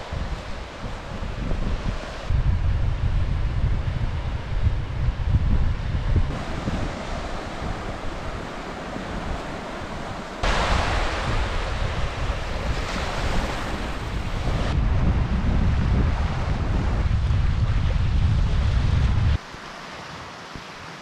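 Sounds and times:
wind buffeting microphone: 0.0 - 19.4
waves lapping on pebbly shore: 6.4 - 14.5.

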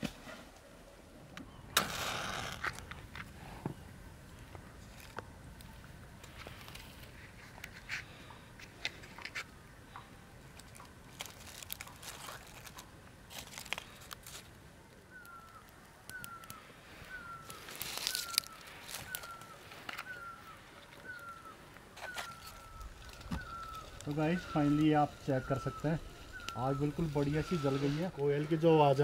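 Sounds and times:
campfire crackling and popping: 1.3 - 29.0
fire hissing flare: 1.8 - 4.0, 13.8 - 28.9
koel bird calling: 14.9 - 29.0.

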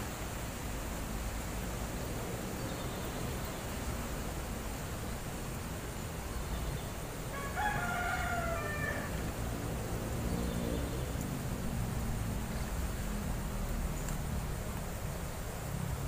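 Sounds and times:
steady low background noise: 0.0 - 16.0
rooster crowing: 7.3 - 9.4.

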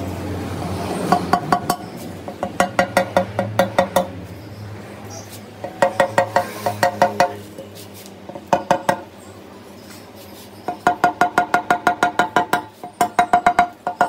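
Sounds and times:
rubber mallet tapping glass: 1.1 - 4.1, 5.6 - 7.4, 8.4 - 9.1, 10.7 - 14.0.

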